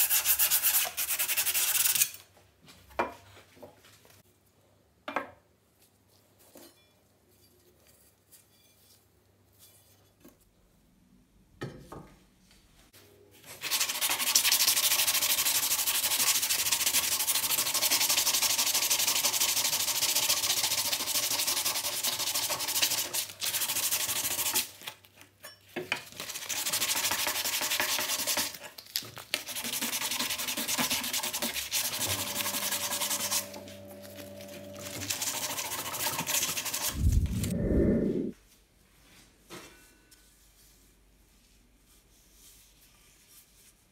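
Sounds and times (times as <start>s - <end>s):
sandpaper rubbing on steel blade: 0.0s - 2.2s, 29.5s - 37.0s
sanding wooden handle: 29.5s - 33.6s, 34.8s - 37.0s.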